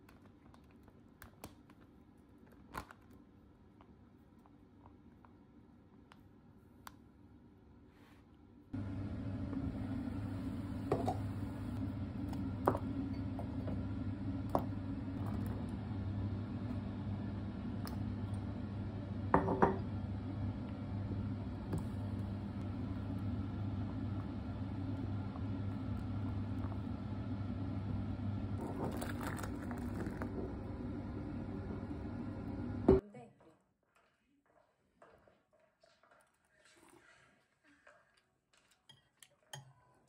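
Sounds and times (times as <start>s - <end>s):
steady low hum: 8.6s - 33.0s.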